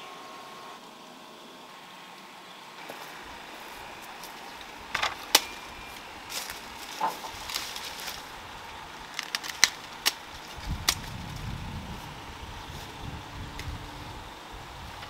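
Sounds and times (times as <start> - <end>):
sharp clicks and snaps: 9.1 - 11.2.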